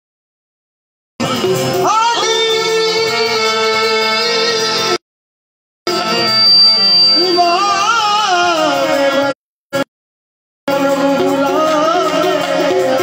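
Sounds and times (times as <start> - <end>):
man singing ornamented line: 1.7 - 5.0, 7.2 - 9.9, 10.7 - 13.0.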